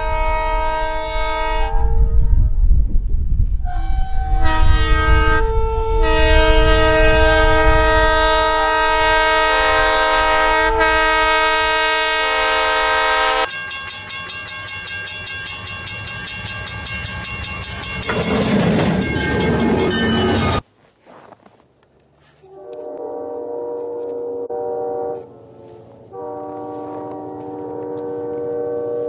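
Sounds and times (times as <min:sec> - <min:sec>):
locomotive air horn: 0:00.0 - 0:02.1, 0:03.6 - 0:13.5, 0:22.4 - 0:29.0
bell ringing rapidly: 0:13.5 - 0:20.6.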